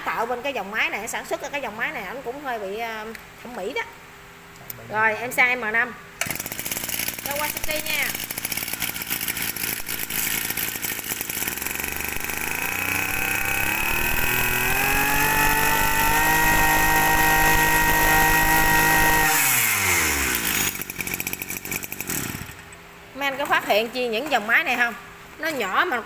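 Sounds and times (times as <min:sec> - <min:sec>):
brush cutter engine revving: 0:06.2 - 0:22.7.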